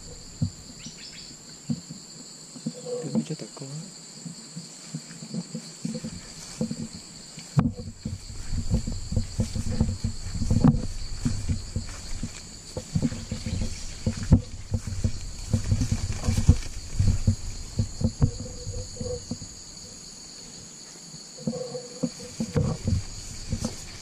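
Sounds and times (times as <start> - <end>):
high insect drone: 0.0 - 24.0
footsteps through undergrowth: 4.6 - 19.6, 21.5 - 24.0.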